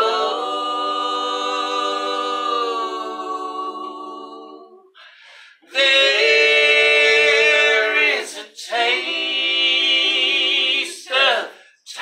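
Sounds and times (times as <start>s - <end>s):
group singing a cappella: 0.0s - 12.0s.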